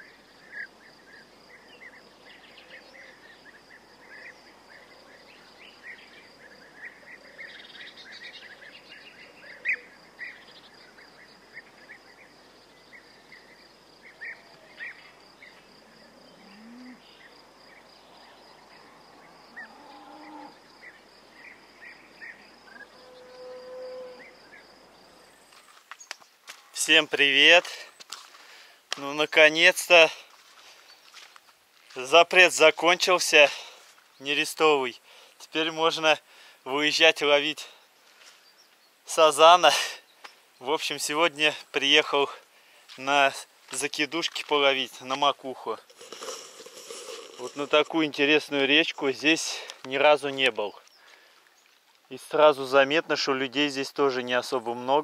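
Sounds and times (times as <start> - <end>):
bird chirps: 0.0 - 24.7
insect trill: 0.0 - 28.0, 42.8 - 49.4.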